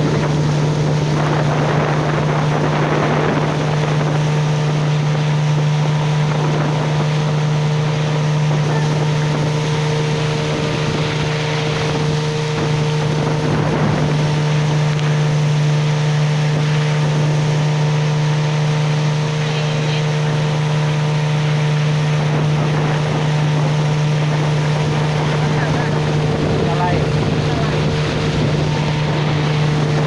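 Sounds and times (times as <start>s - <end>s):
outboard motor running: 0.0s - 30.0s
water rushing along hull: 0.0s - 30.0s
wind buffeting microphone: 0.0s - 30.0s.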